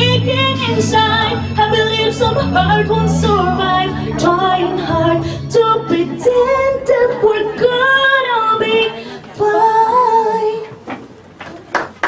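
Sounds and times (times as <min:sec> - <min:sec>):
woman singing a ballad: 0:00.0 - 0:10.8.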